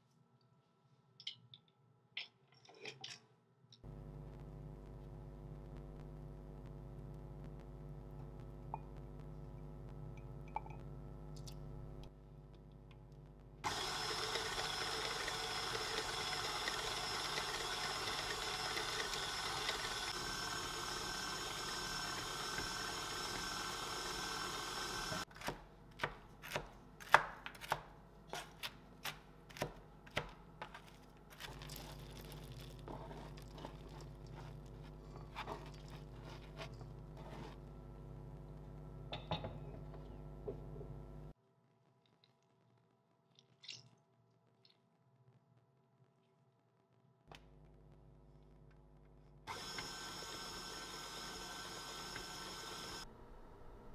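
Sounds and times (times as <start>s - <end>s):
stand mixer whisking batter: 13.7s - 25.3s, 49.5s - 53.0s.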